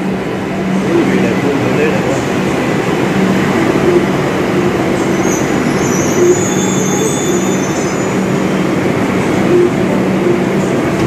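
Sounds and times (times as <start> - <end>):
metro train rumbling: 0.0 - 11.0
high brake squeal: 5.0 - 8.8.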